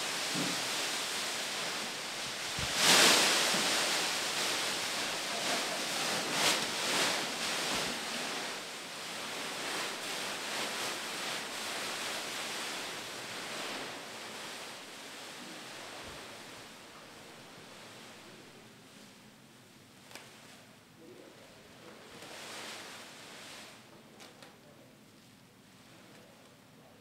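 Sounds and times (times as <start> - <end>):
plastic bags rustling: 0.0 - 18.2.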